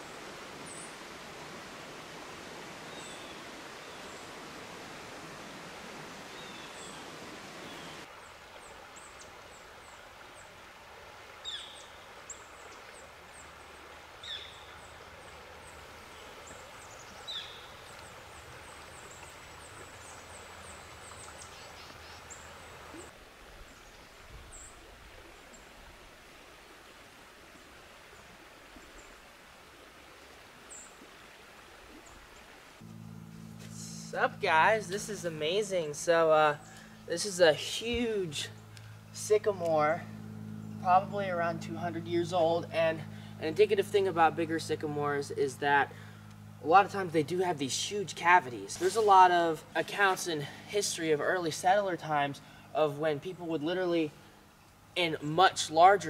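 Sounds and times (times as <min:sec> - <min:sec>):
steady rushing hiss: 0:00.0 - 0:29.8, 0:30.7 - 0:56.0
small birds chirping: 0:02.8 - 0:04.3, 0:06.3 - 0:08.1, 0:11.4 - 0:23.1.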